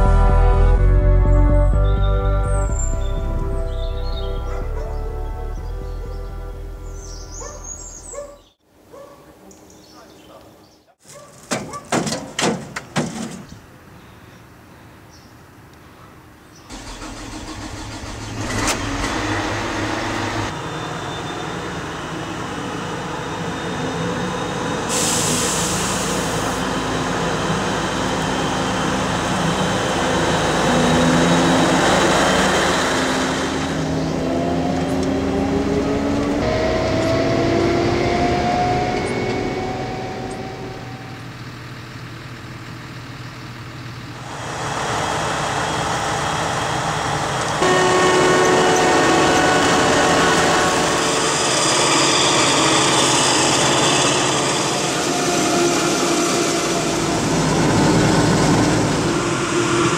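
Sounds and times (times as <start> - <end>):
diesel engine revving: 16.7 - 59.9
diesel engine starting: 16.7 - 59.9.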